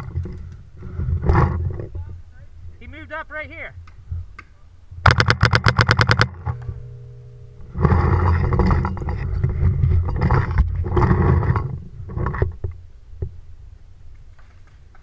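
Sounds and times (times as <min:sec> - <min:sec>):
paintball marker rapid shots: 0:05.0 - 0:06.4.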